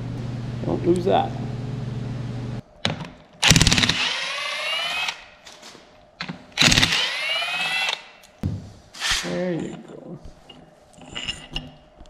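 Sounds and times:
impact driver hammering and whining: 0:03.4 - 0:05.2, 0:06.6 - 0:08.1.

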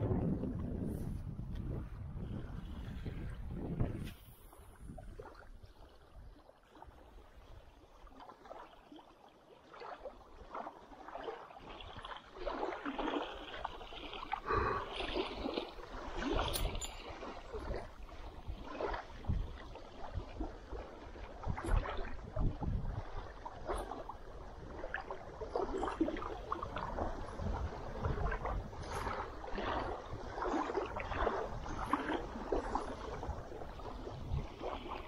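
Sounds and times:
waves lapping on gravel shore: 0:09.8 - 0:20.1, 0:25.3 - 0:35.0.

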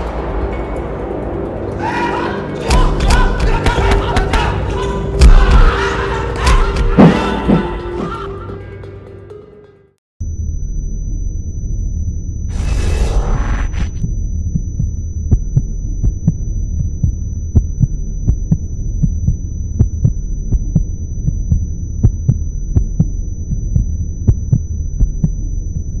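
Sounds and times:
low electronic drone: 0:10.2 - 0:26.0.

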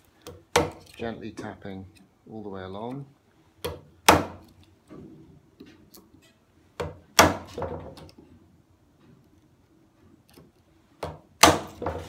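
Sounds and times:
chisel striking wood: 0:00.2 - 0:00.9, 0:03.6 - 0:04.5, 0:06.8 - 0:07.9, 0:11.0 - 0:12.0.

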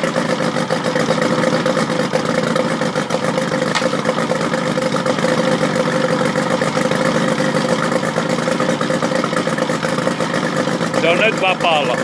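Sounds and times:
outboard motor idling: 0:00.0 - 0:12.0.

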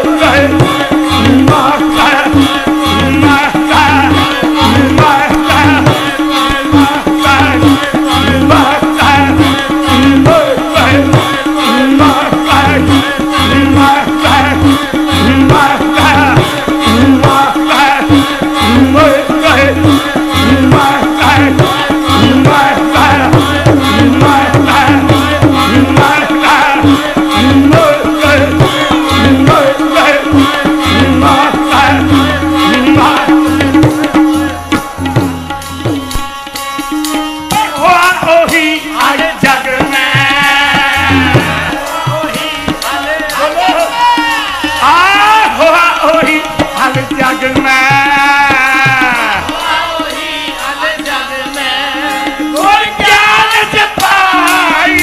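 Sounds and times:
harmonium chords: 0:00.0 - 0:55.0
tabla drums beat: 0:00.0 - 0:55.0.

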